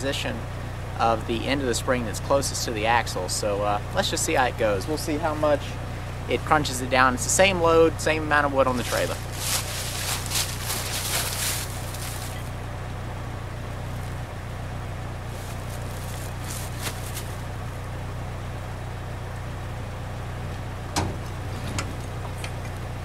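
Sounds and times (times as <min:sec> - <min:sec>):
vehicle engine idling: 0:00.0 - 0:23.0
trailer hitch clunk: 0:20.9 - 0:22.8.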